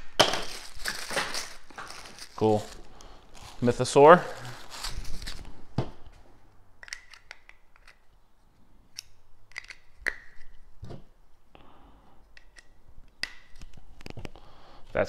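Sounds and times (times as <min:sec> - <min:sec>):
plastic packaging rustle: 0:00.1 - 0:05.5.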